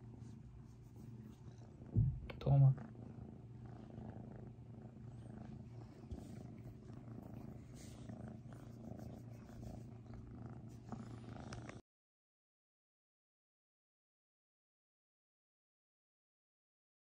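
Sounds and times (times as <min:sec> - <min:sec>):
kitten purring: 0:00.0 - 0:11.8.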